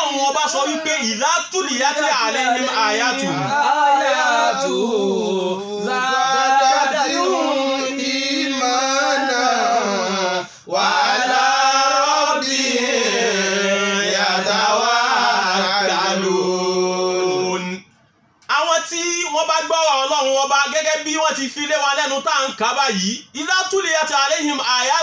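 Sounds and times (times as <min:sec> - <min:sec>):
man chanting melodically: 0:00.0 - 0:10.6.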